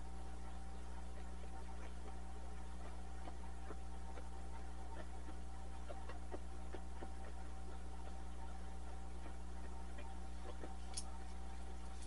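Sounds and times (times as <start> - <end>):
faint steady tones: 0.0 - 12.0
low hum: 0.0 - 12.0
light clicks and ticks: 10.5 - 12.0.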